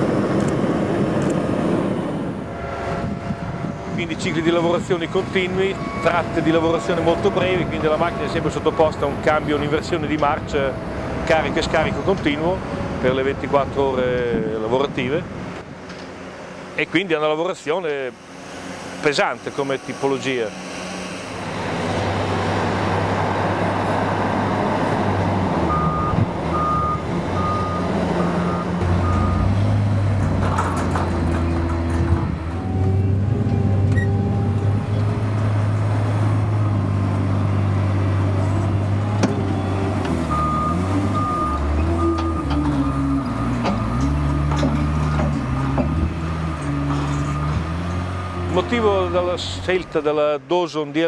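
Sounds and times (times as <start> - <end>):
wheel loader diesel engine: 0.0 - 50.4
reversing alarm beeps: 5.8 - 7.1, 25.7 - 29.4, 40.3 - 44.0.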